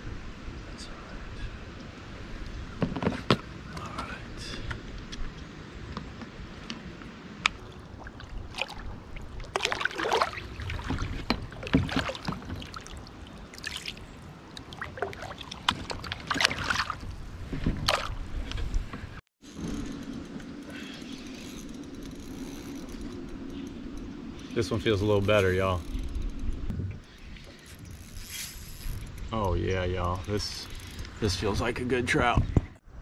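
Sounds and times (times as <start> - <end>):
water splashing and sloshing: 4.6 - 26.7.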